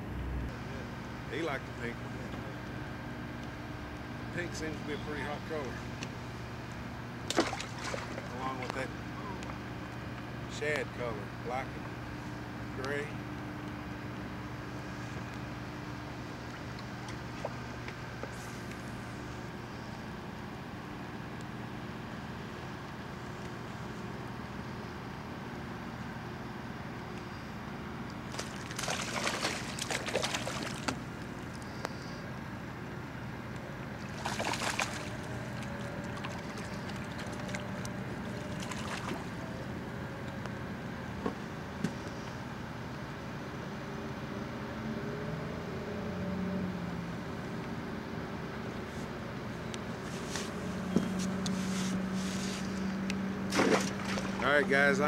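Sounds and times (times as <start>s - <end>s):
steady mechanical hum: 0.0s - 55.0s
fish splashing at water surface: 7.2s - 8.7s, 28.3s - 31.7s, 34.0s - 39.4s, 53.5s - 54.4s.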